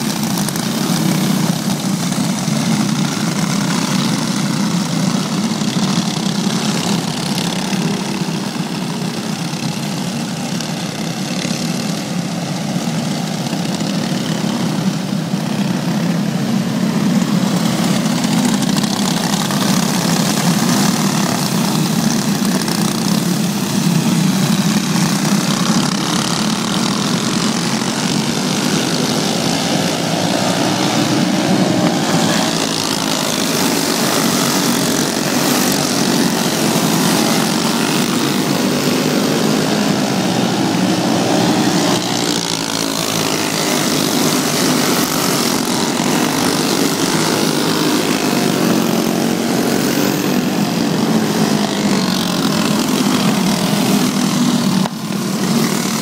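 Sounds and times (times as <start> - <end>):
racing kart engines whining: 0.0 - 56.0.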